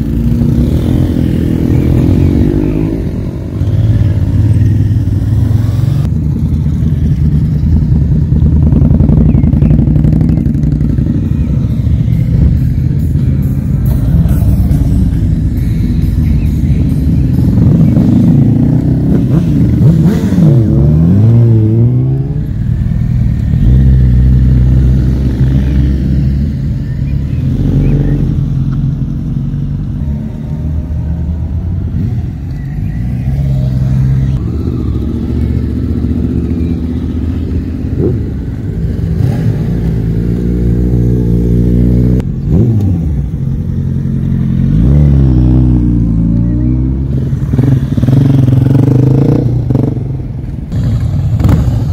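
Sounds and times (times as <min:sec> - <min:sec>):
motorcycles accelerating past: 0:00.0 - 0:11.7, 0:33.2 - 0:51.9
motorcycle engines idling: 0:00.0 - 0:20.7, 0:22.3 - 0:51.9.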